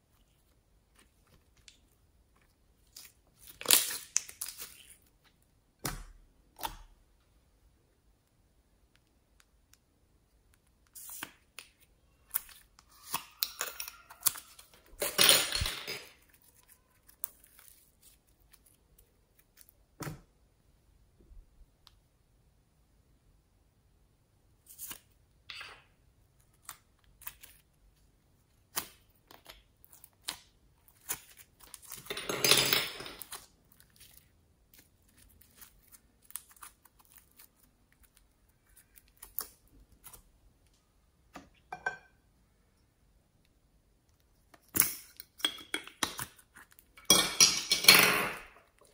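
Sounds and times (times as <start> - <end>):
slime crackling and tearing: 2.8 - 5.2, 10.9 - 15.1, 28.5 - 32.1, 33.2 - 40.2.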